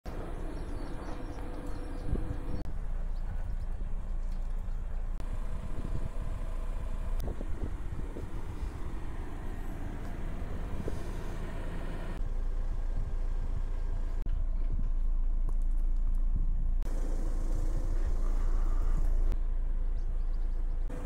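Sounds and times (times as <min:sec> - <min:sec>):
car engine running at low revs: 0:00.0 - 0:21.0.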